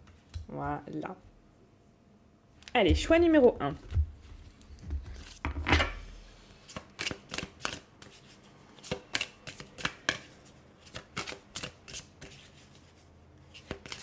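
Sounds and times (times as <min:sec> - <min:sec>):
cards shuffled by hand: 0:06.5 - 0:14.0.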